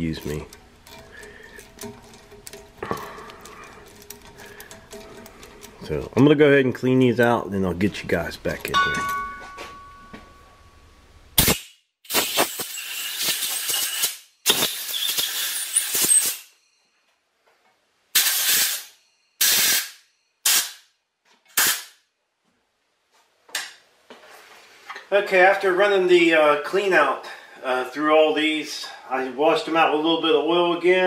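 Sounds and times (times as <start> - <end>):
air blow gun hissing: 11.4 - 16.5, 18.2 - 20.8.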